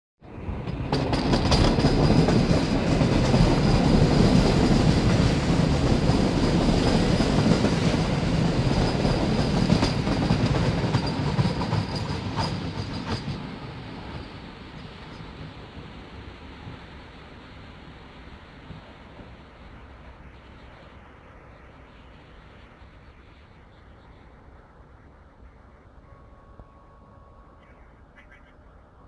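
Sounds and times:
train wheels clacking on rails: 0.3 - 16.0
train heavy rumble: 0.3 - 21.2.

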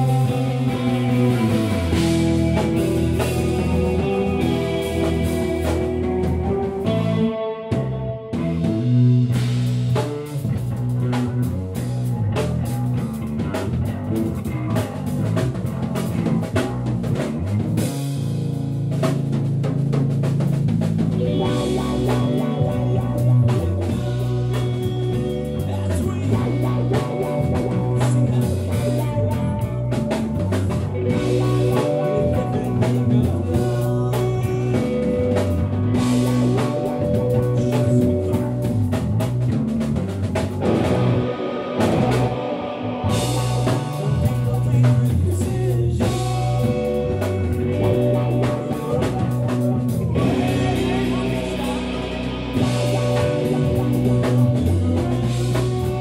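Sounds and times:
distorted electric guitars: 0.0 - 56.0
drum kit: 0.0 - 56.0.

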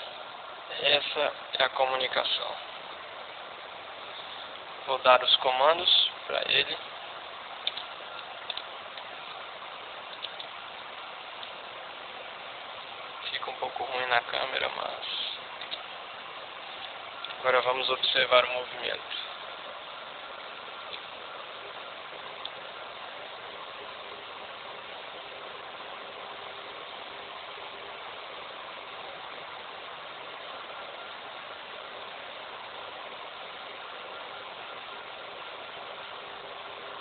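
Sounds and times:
small ticks: 7.6 - 9.4, 10.1 - 10.6, 11.4 - 11.6, 15.6 - 15.9, 20.8 - 21.1.

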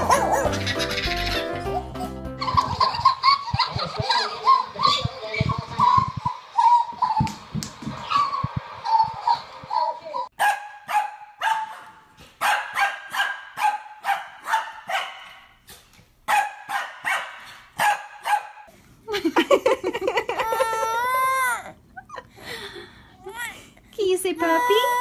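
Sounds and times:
dog barking: 10.4 - 15.5, 16.3 - 18.7.

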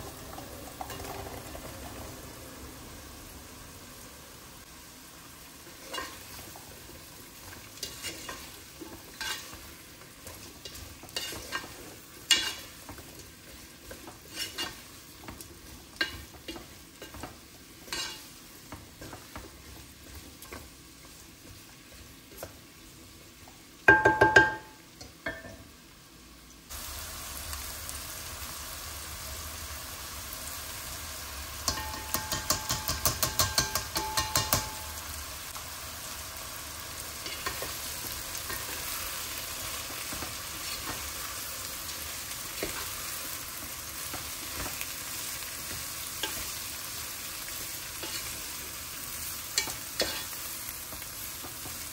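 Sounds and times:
vegetables sizzling in oil: 0.0 - 51.9
strainer tapping against pot: 31.7 - 34.9.

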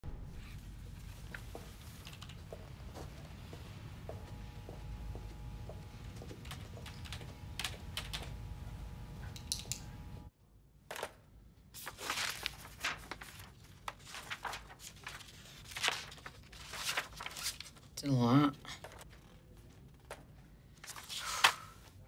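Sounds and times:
steady low hum: 0.0 - 10.3
paper rustling and crinkling: 11.8 - 18.0, 18.8 - 22.0.

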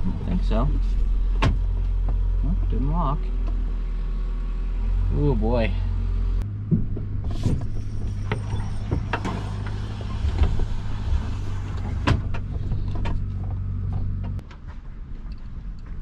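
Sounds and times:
rattles and knocks from vehicle body: 0.0 - 2.8, 6.4 - 16.0
low vehicle drone: 0.0 - 16.0.

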